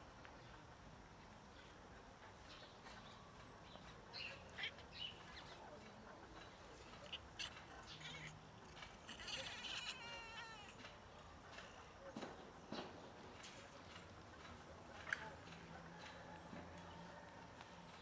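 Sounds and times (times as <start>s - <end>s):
cat yowling: 6.9s - 10.8s.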